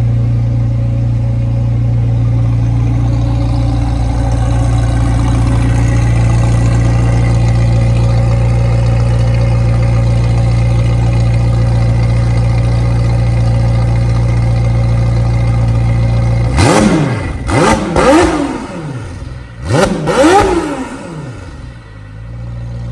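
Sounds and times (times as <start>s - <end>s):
car engine idling: 0.0s - 22.9s
engine revving throttle blips: 16.4s - 22.2s.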